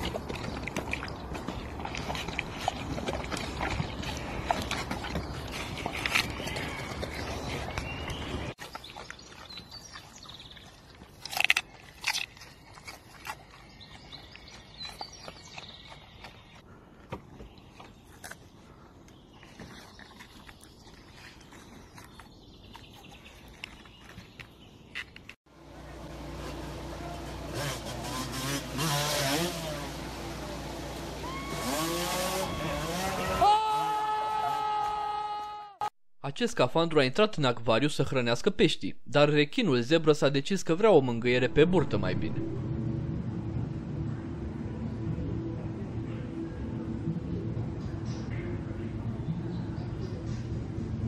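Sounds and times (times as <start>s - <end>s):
wolf crunching a carrot: 0.0s - 16.7s, 17.5s - 25.4s
dirt bike engine revving: 26.0s - 33.9s.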